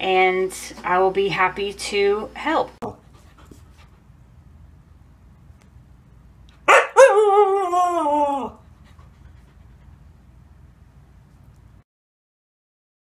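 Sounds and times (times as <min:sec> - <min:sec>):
dog howling: 0:06.7 - 0:08.6
dog yelping: 0:06.7 - 0:08.6.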